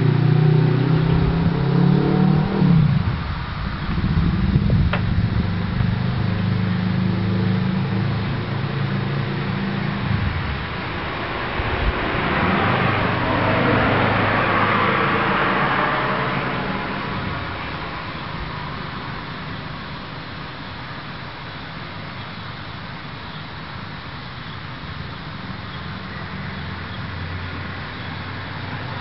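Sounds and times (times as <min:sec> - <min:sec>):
passing car tyre noise: 0:00.0 - 0:29.0
vehicle engine humming: 0:00.0 - 0:29.0.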